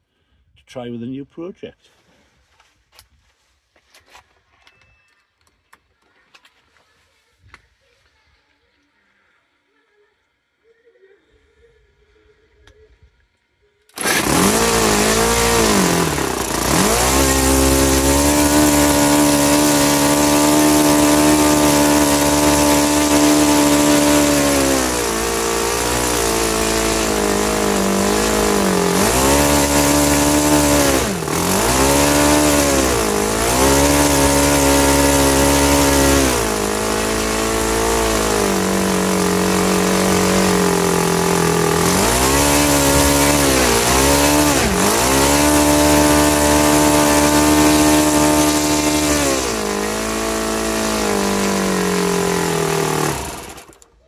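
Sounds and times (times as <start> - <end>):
electric starter: 13.8 - 54.0
model aircraft engine revving: 13.9 - 54.0.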